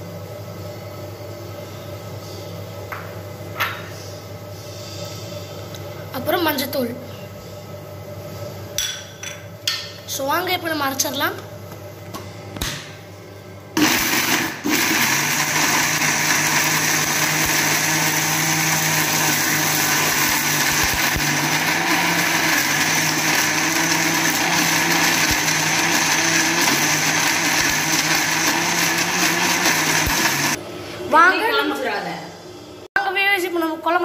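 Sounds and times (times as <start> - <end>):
mixer grinder motor: 13.8 - 30.6.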